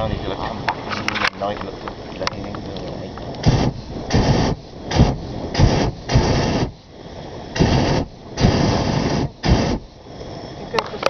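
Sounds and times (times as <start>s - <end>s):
propane burner blasts: 0.0s - 11.0s.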